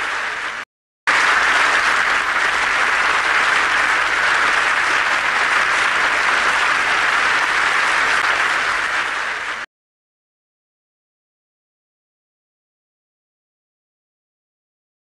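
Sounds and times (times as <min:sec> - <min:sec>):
audience applause: 0:00.0 - 0:09.7.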